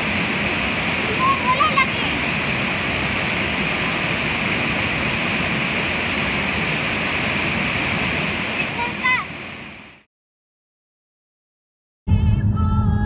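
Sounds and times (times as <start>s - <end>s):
waterfall rushing: 0.0s - 10.1s.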